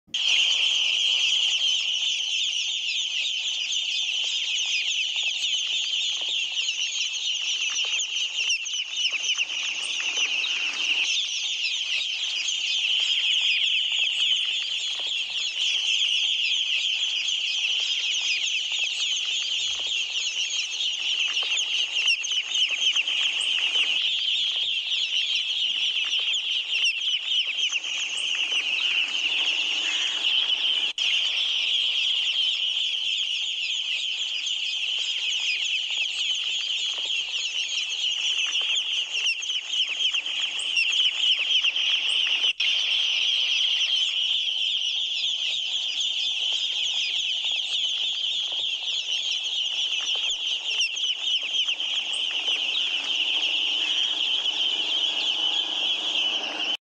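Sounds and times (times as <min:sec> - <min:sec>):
ducklings peeping: 0:00.1 - 0:56.8.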